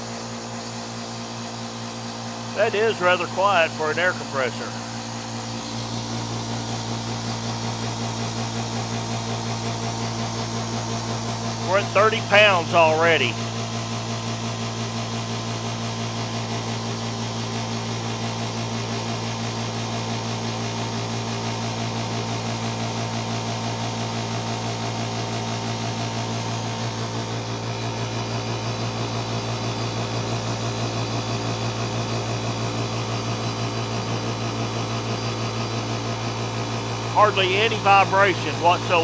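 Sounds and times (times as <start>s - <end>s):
air compressor humming: 0.0s - 39.0s.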